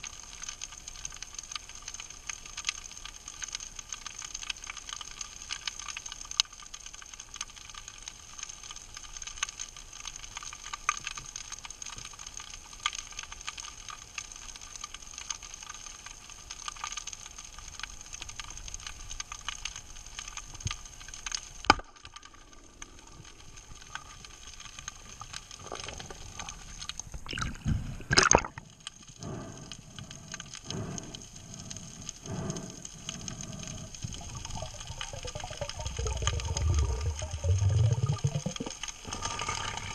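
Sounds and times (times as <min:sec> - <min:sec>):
faint underwater crackling: 0:00.0 - 0:39.9
swimmer swishing underwater: 0:22.2 - 0:39.9.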